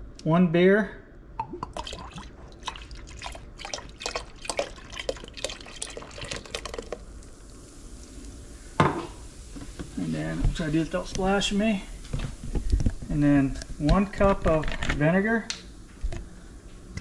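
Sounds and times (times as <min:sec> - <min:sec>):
beer glugging and splashing: 0:01.4 - 0:07.2
steady hiss: 0:06.4 - 0:17.0.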